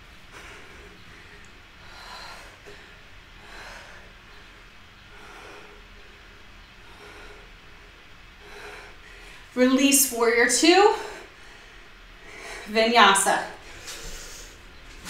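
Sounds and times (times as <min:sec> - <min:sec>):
low room hum: 0:00.0 - 0:15.0
person breathing softly: 0:00.2 - 0:09.5.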